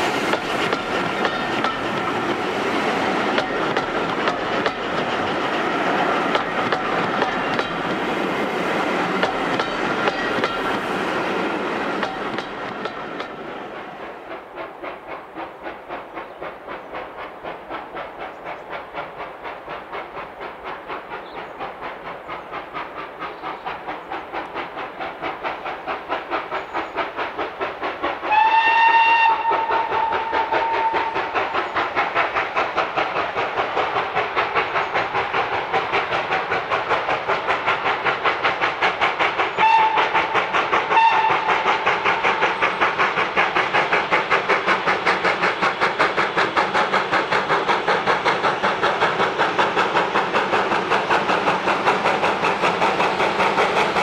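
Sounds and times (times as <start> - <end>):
steam locomotive exhaust beating: 0.0 - 54.0
steam whistle blast: 28.3 - 31.4, 39.6 - 40.2, 40.9 - 41.6.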